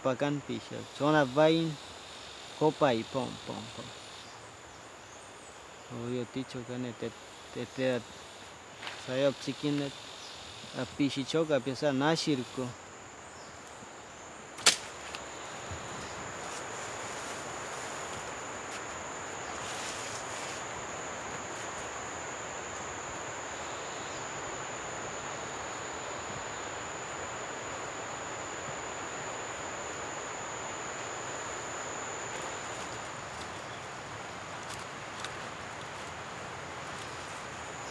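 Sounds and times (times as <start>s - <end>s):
outdoor hiss: 0.0s - 37.9s
bow string snap: 14.6s - 15.2s.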